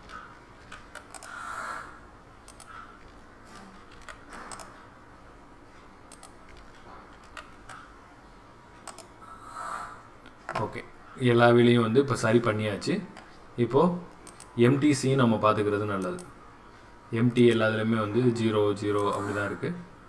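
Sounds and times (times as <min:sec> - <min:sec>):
computer mouse clicks: 0:00.0 - 0:01.4, 0:02.4 - 0:04.8, 0:06.1 - 0:07.9, 0:08.8 - 0:09.2, 0:14.1 - 0:14.6, 0:16.0 - 0:16.3, 0:19.0 - 0:19.4
low room noise: 0:00.0 - 0:20.0
keyboard presses: 0:02.4 - 0:04.8.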